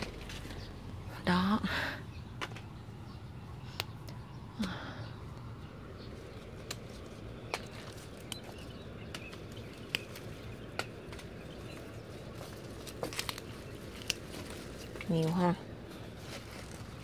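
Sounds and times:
low background hum: 0.0s - 17.0s
stems snapping: 3.7s - 5.5s, 6.3s - 17.0s
leaves rustling: 6.0s - 17.0s.

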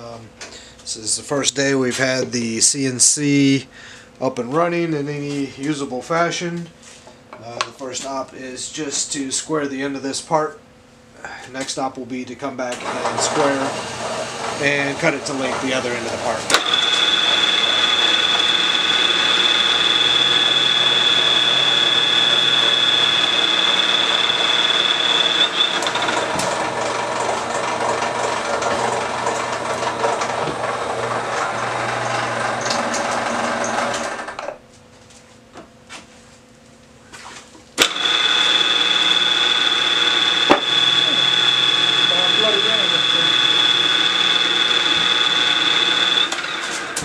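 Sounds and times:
mill spindle high whine: 12.6s - 34.6s, 37.8s - 47.0s
end mill cutting plastic: 12.7s - 34.6s, 37.8s - 47.0s.

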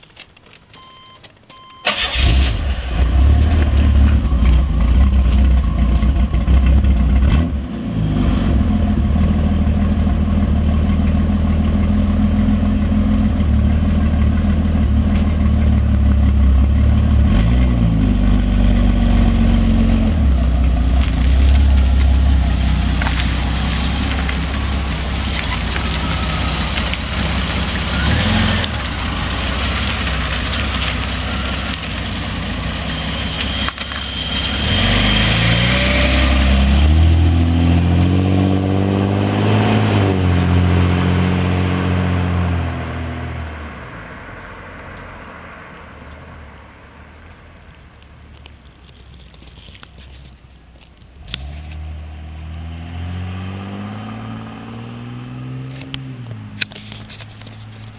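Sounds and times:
car engine starting: 0.8s - 57.9s
car engine idling: 1.8s - 7.4s, 8.6s - 35.4s.

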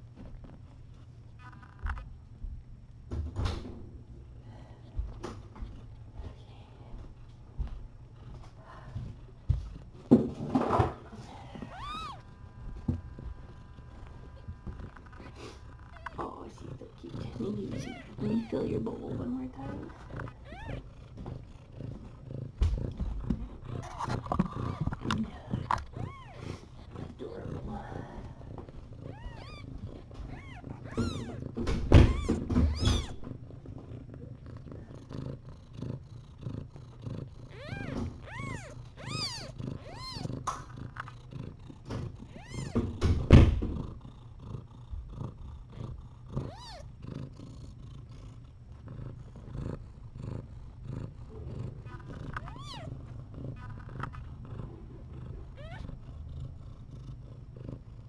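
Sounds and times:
cat purring: 3.4s - 58.0s
kittens squeaking: 11.6s - 12.4s, 17.0s - 18.9s, 19.5s - 21.0s, 23.6s - 27.8s, 29.0s - 33.4s, 37.5s - 40.5s, 42.2s - 42.9s, 46.4s - 46.9s, 51.9s - 53.0s, 55.5s - 56.0s
loud thumps: 31.5s - 33.3s.

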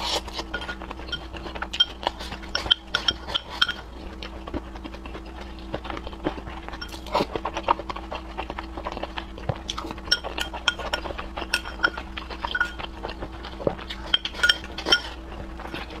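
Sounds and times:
person chewing: 0.0s - 16.0s
chopsticks clinking on bowls: 0.5s - 3.8s, 9.7s - 12.9s, 14.0s - 15.2s.

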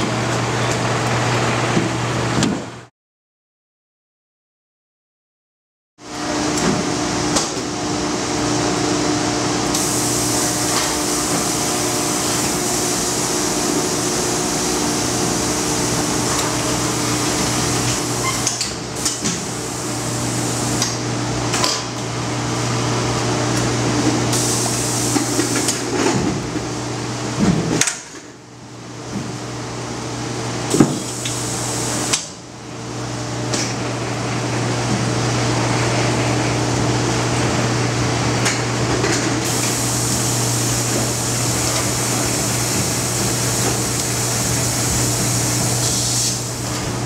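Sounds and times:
machine hum: 6.1s - 26.0s, 30.5s - 47.0s
hiss: 39.5s - 46.6s.

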